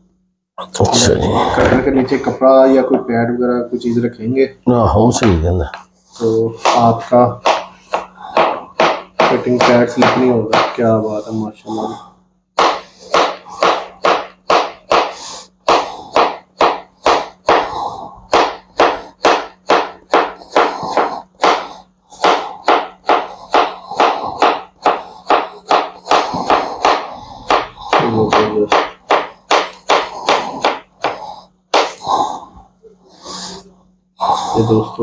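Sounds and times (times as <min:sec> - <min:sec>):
knife chopping on cutting board: 0:06.6 - 0:11.0, 0:12.6 - 0:32.0.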